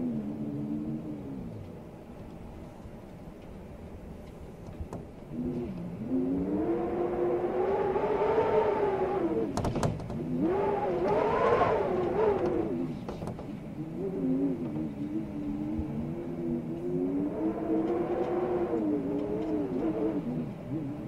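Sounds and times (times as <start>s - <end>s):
blizzard wind howling: 0.0s - 21.0s.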